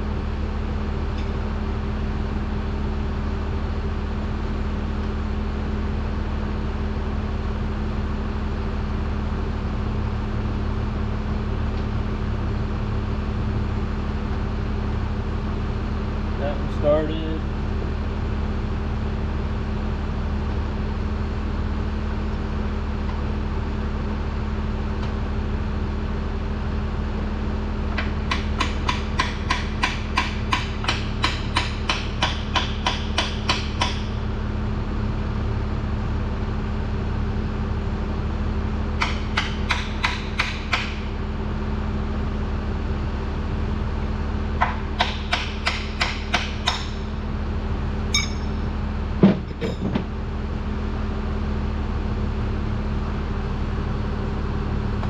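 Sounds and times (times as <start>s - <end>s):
steady low hum: 0.0s - 55.0s
metal-on-metal tool taps: 48.1s - 48.5s.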